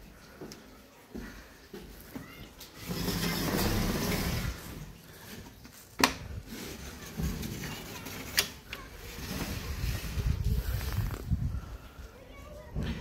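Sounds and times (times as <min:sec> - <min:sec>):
mesh screen scraping: 0:02.8 - 0:04.9, 0:06.5 - 0:11.4.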